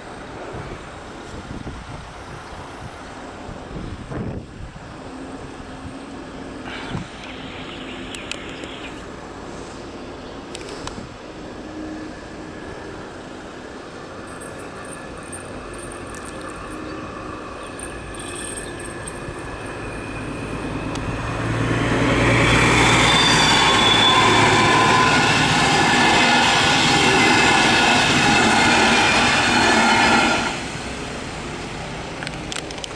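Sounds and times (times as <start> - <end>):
train engine and wheels rumbling: 0.0 - 32.9
high wheel squeal: 16.5 - 30.5.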